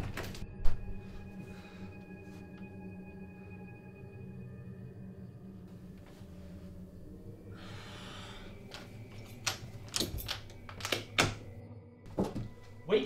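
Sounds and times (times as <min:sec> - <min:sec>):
low steady drone: 0:00.1 - 0:11.0
breathy hiss: 0:07.4 - 0:08.9.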